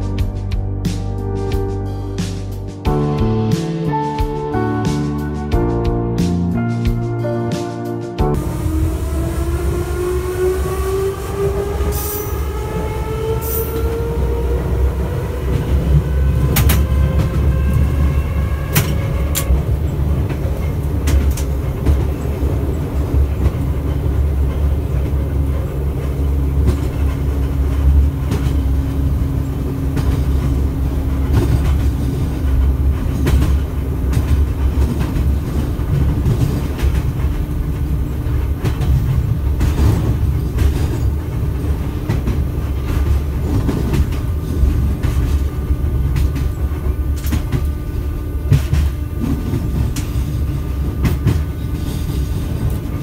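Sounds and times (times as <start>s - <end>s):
train hum: 0.0s - 53.0s
train low rumble: 0.0s - 53.0s
wheels clicking over rail joints: 11.9s - 53.0s.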